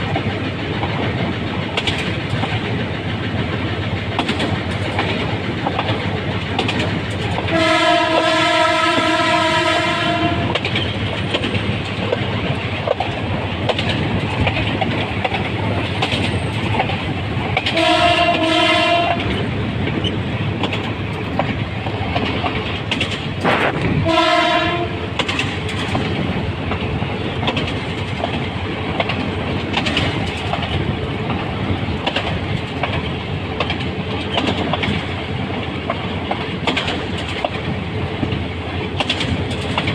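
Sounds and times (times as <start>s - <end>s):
locomotive rumbling along track: 0.0s - 39.9s
locomotive horn blasts: 7.5s - 10.6s, 17.7s - 19.3s, 24.0s - 25.0s.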